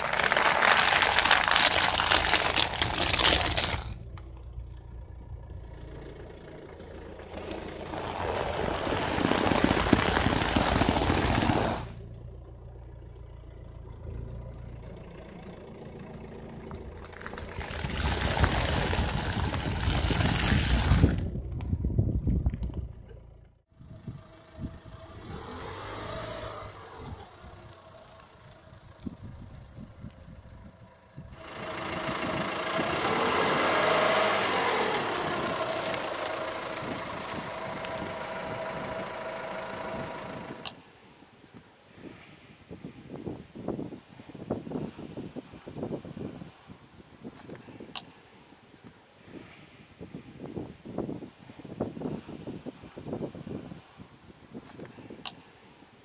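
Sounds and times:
car tyre crushing objects: 0.0 - 4.8, 7.2 - 12.0, 32.9 - 40.2.

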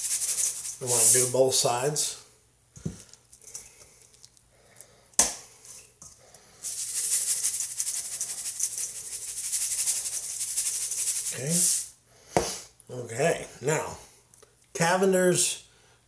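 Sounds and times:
salt rattling from a shaker: 0.0 - 1.4, 6.6 - 11.9.

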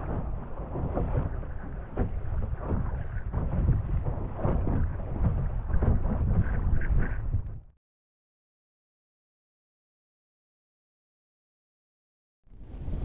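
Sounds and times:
waves slapping boat hull: 0.0 - 7.5
wind buffeting microphone: 0.0 - 7.7, 12.5 - 13.0.

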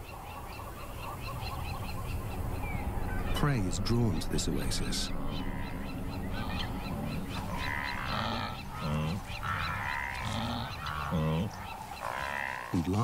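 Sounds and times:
animals honking calls: 5.0 - 13.0
short low animal calls: 6.4 - 12.8.

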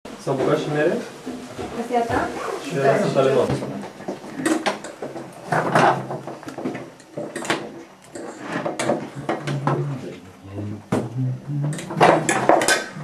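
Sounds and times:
cutlery clinking on dishes: 11.7 - 13.0.

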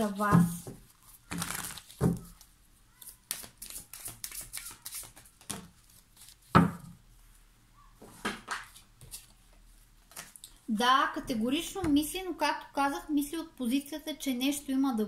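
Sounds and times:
cards clicking and flicking: 1.3 - 2.4, 3.0 - 6.3.

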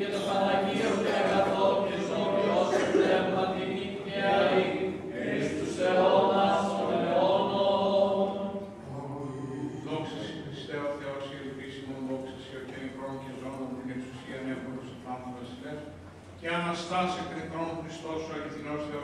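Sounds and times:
choir chanting: 0.0 - 10.5.

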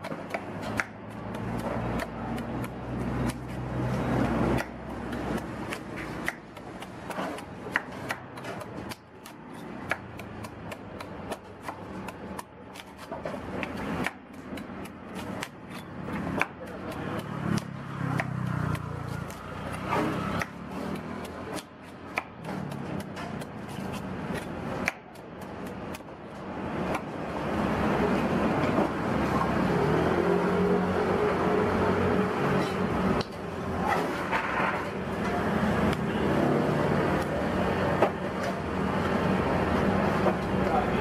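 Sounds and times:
steady background noise: 0.0 - 41.0
machete scraping coconut husk: 0.2 - 26.0, 33.7 - 35.1.

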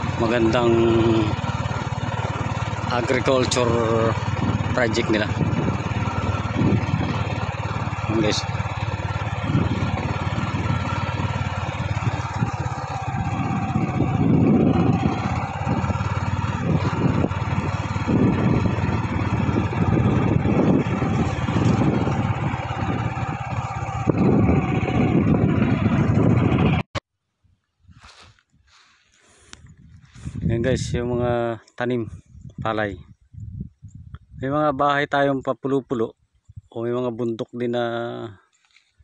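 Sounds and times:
low rumble: 0.0 - 26.9
scooter engine running: 0.0 - 27.0.

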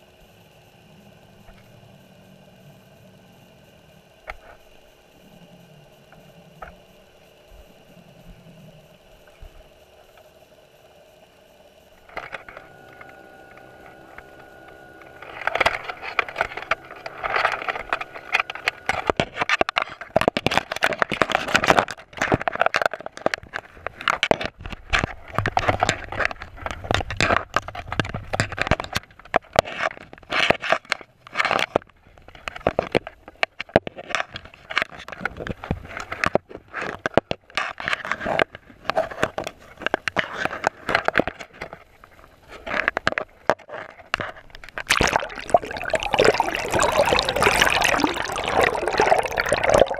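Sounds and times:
underwater crackling and scraping: 12.0 - 49.9.

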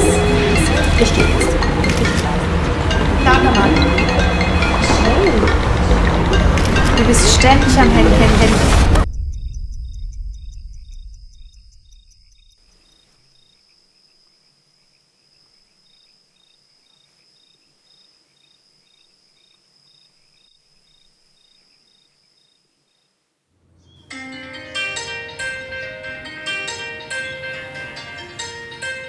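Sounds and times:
low rumble: 0.0 - 12.6
cricket chirping: 9.0 - 23.3.

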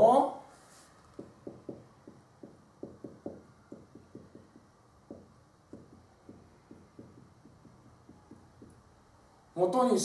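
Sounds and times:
chalk tapping on blackboard: 1.0 - 8.9.

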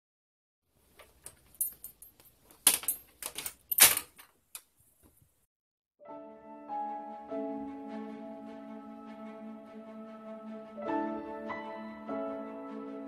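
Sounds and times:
background music: 6.0 - 13.0.

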